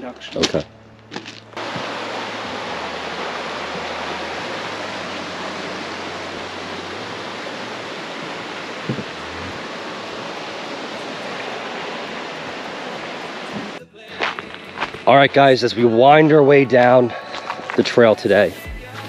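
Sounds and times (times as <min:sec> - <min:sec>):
creek rushing over rocks: 0:00.3 - 0:19.0
soft knock: 0:08.9 - 0:09.1.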